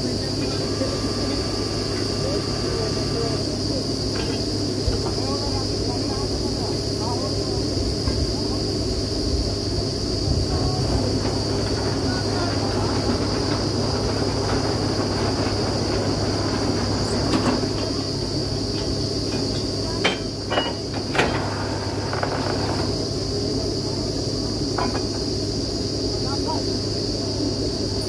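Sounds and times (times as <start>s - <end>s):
drilling rig engine drone: 0.0s - 28.0s
high mechanical whine: 0.0s - 28.0s
sharp metal clanks: 19.3s - 21.4s.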